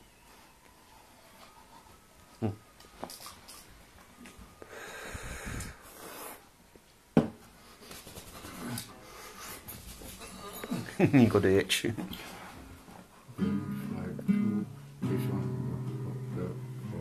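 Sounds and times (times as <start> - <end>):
long breathy sound: 4.5 - 6.5.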